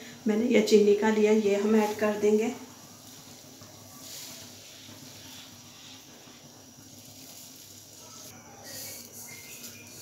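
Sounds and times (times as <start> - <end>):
water boiling in a pan: 0.0 - 10.0
sugar pouring into liquid: 2.5 - 10.0.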